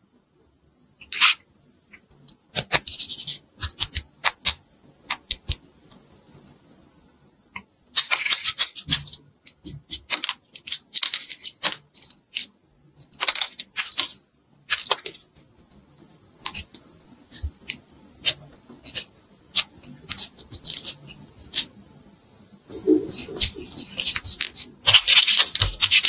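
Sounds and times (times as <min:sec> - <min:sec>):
scissors snipping clay: 0:02.6 - 0:05.6, 0:07.6 - 0:12.5, 0:16.4 - 0:21.7, 0:23.1 - 0:26.0.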